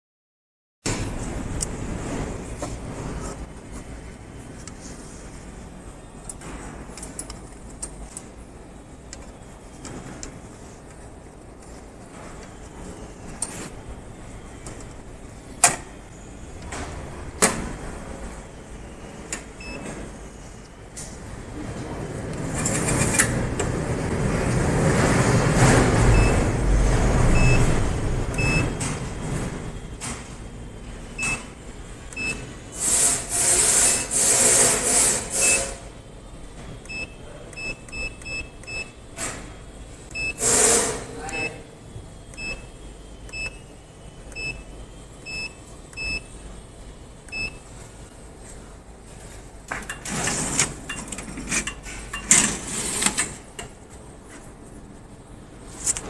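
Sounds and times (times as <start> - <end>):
keypad beeps: 19.6 - 19.9, 26.1 - 26.4, 27.4 - 27.7, 28.3 - 28.8, 31.2 - 31.5, 32.1 - 32.5, 36.8 - 39.0, 40.1 - 40.4, 41.2 - 41.6, 42.3 - 42.7, 43.3 - 43.7, 44.3 - 46.3, 47.3 - 47.6.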